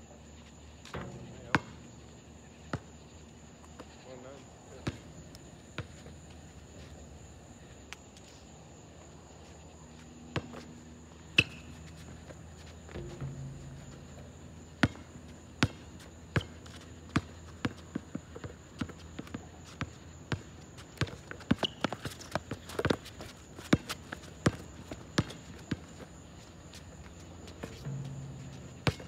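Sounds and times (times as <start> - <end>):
basketball bouncing on asphalt: 0.9 - 4.0, 4.8 - 6.4, 11.3 - 29.0.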